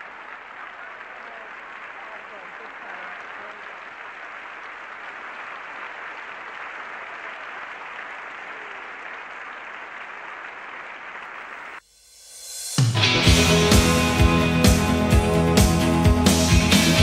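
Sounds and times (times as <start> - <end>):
crowd applauding: 0.0 - 11.8, 12.8 - 17.0.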